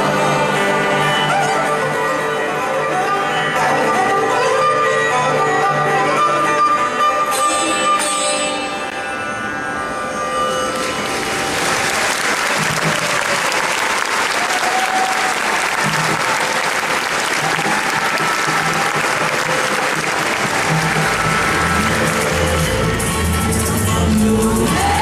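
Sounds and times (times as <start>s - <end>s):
held instrument notes: 0.0s - 13.2s, 16.0s - 25.0s
audience clapping: 10.8s - 23.5s
band playing low notes: 15.6s - 25.0s.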